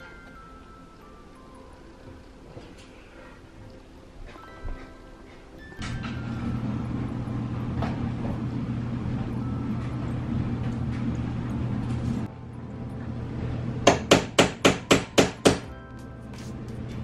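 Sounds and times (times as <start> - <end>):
hammer tapping nail into wood: 13.9 - 15.7.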